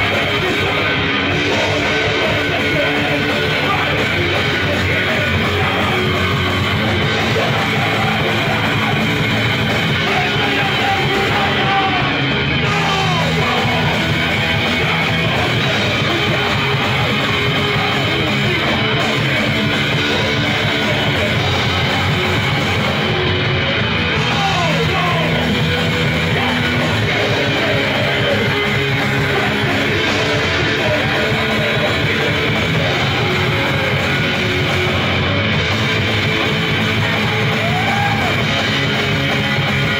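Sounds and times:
electric guitar: 0.0s - 39.9s
rock band playing live: 0.0s - 39.9s.

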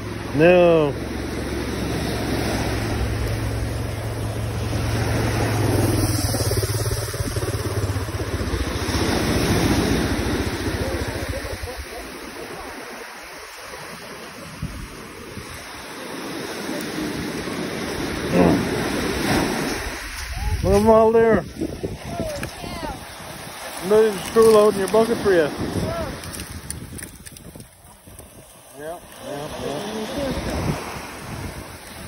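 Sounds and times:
low hum: 0.0s - 12.1s
waves breaking on pebble beach: 0.0s - 32.0s
wind on microphone: 1.6s - 13.0s, 13.8s - 32.0s.

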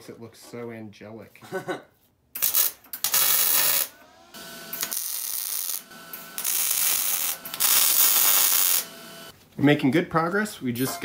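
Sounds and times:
welding arc crackling: 2.4s - 9.3s.

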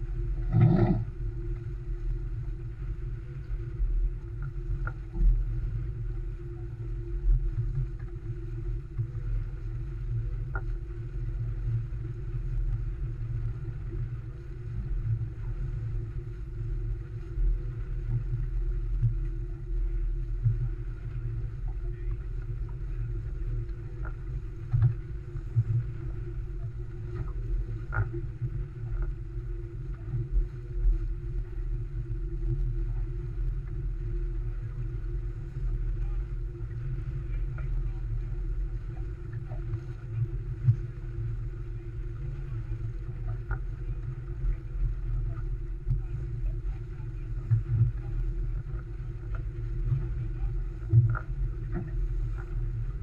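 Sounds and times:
water splashes: 0.4s - 1.1s.

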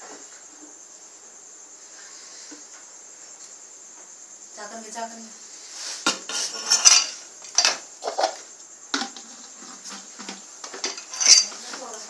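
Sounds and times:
objects knocking and rustling: 5.9s - 12.0s.

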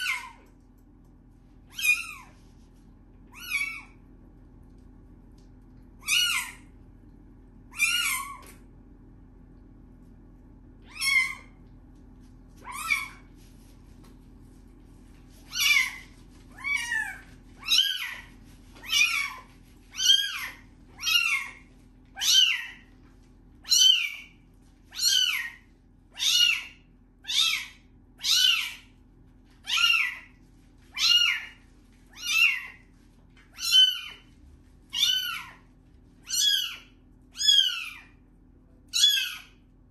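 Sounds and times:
kitten meowing: 3.3s - 4.0s, 7.7s - 8.5s, 10.8s - 11.6s, 12.6s - 13.3s, 15.5s - 21.6s, 22.2s - 22.8s, 23.6s - 24.3s, 24.9s - 25.6s, 26.2s - 28.8s, 29.6s - 30.3s, 30.9s - 32.8s, 33.6s - 34.2s, 34.9s - 35.6s, 36.2s - 38.1s, 38.9s - 39.5s.

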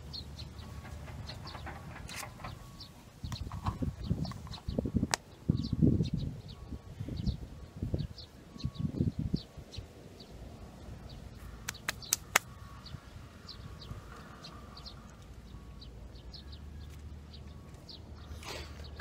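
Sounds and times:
small bird chirping: 0.0s - 19.0s
sharp clicks: 11.6s - 12.5s.

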